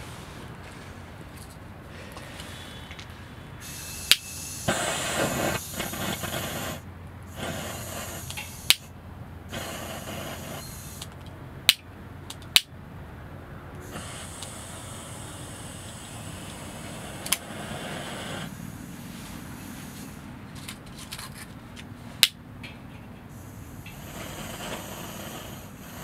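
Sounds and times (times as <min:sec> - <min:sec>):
torch lighter sparking clicks: 0:03.6 - 0:08.9, 0:09.5 - 0:12.7, 0:13.9 - 0:18.6, 0:23.4 - 0:26.0
gas torch hissing: 0:03.6 - 0:11.8, 0:13.8 - 0:20.6, 0:23.3 - 0:26.0.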